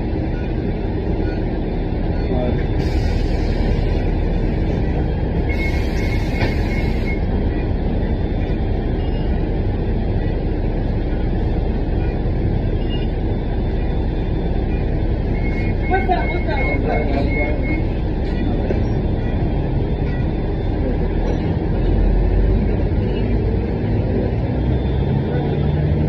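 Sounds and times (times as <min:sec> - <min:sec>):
bus engine and road rumble: 0:00.0 - 0:26.0.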